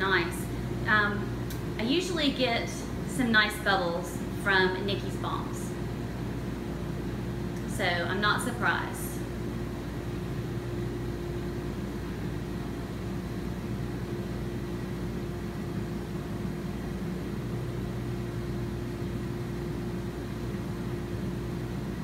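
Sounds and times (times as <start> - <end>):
pump humming: 3.8 - 22.0.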